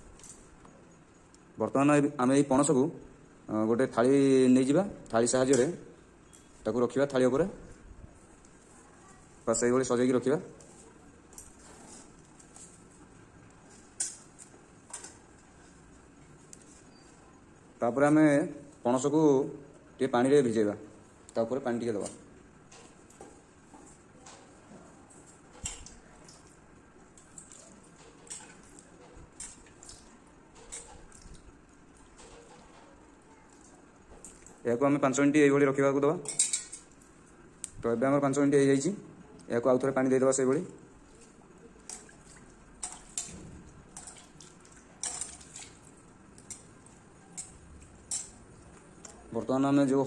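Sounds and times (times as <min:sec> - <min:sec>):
steel bowl clinking: 0:36.2 - 0:37.0
water splashing in steel bowl: 0:41.2 - 0:48.5.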